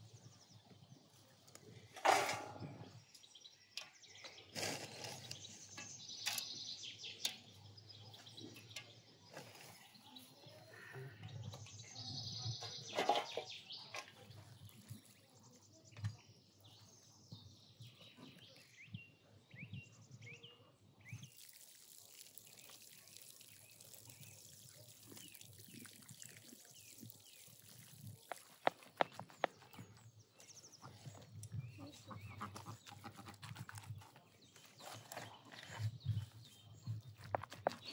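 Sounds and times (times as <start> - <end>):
small birds chirping: 2.6 - 37.9
water poured onto soil: 14.2 - 15.4, 21.1 - 30.0
hands rubbing hair into soil: 25.1 - 29.8.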